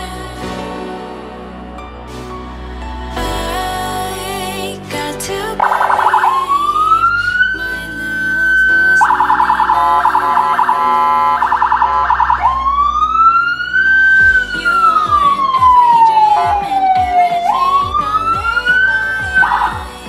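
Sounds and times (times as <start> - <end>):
electronic vehicle siren: 5.6 - 7.6, 8.3 - 19.9.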